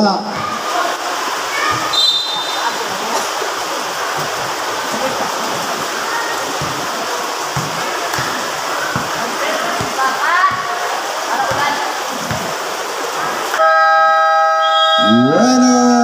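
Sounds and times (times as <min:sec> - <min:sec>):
crowd cheering and shouting: 0:00.0 - 0:02.8.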